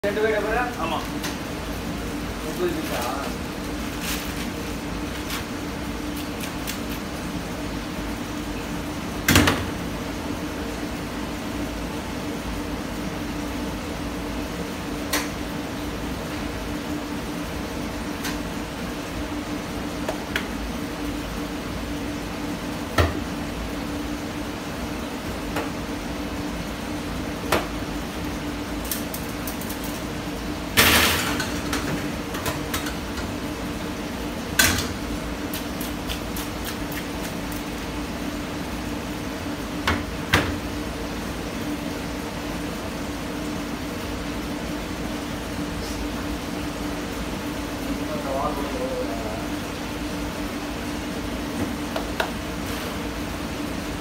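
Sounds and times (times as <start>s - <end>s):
kitchen hum: 0.0s - 54.0s.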